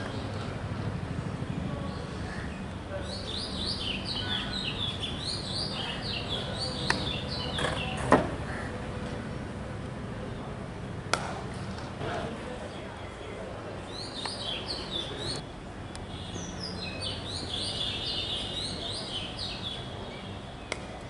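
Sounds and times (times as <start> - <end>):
birds chirping: 0.0 - 8.9, 12.6 - 15.4, 16.0 - 21.0
low background noise: 0.0 - 21.0
cricket bat striking ball: 6.8 - 7.1, 11.1 - 11.5.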